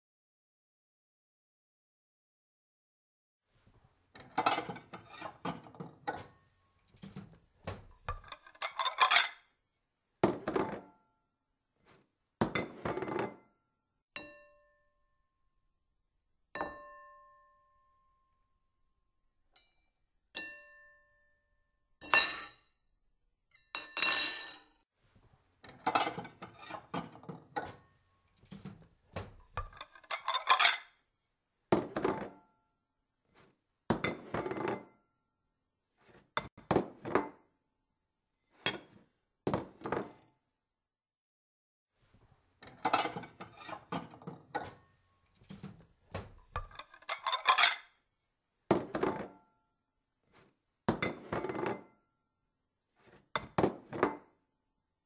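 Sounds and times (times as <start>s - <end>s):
toy pots and pans clattering: 7.0s - 9.4s, 25.6s - 27.9s, 28.5s - 30.9s, 42.6s - 47.9s.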